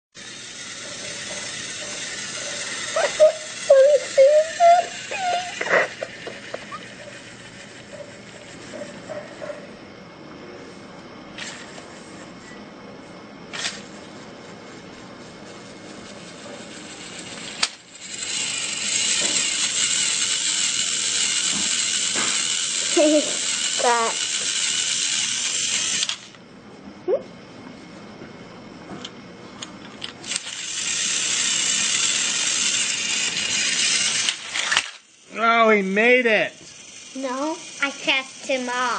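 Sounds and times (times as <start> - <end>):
toy train whirring: 0.2 - 9.7, 11.4 - 12.6, 13.5 - 26.4, 29.9 - 38.9
young child squealing and babbling: 3.0 - 5.7.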